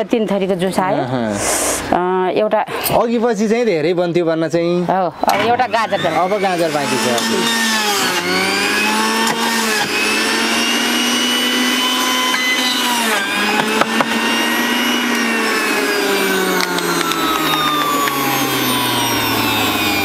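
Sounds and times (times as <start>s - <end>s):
electric juicer motor whine: 5.3s - 20.0s.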